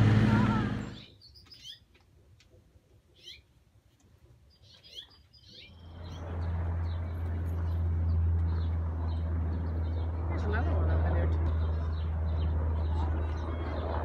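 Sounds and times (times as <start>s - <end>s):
bird chirps: 0.8s - 1.9s, 4.5s - 6.3s.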